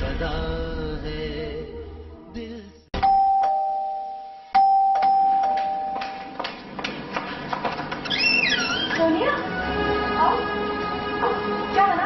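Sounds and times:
two-tone doorbell chime: 3.0 - 6.2.

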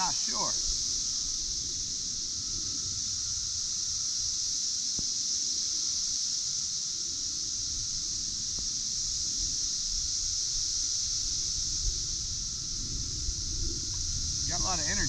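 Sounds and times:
insect chorus drone: 0.0 - 15.0
wind rumble on microphone: 7.0 - 15.0.

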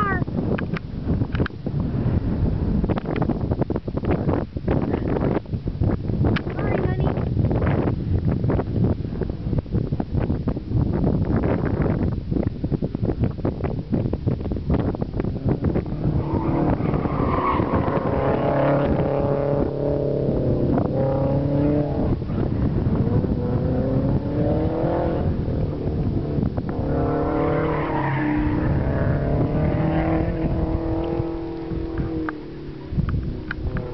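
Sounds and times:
wind buffeting microphone: 0.0 - 33.9
car engine revving: 15.3 - 33.9.

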